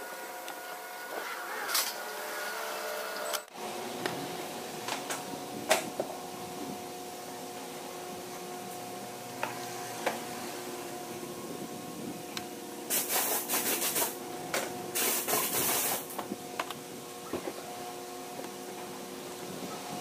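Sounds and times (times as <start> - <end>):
steady hum: 0.0 - 20.0
hissing bursts of spray: 12.9 - 14.2, 15.0 - 16.2.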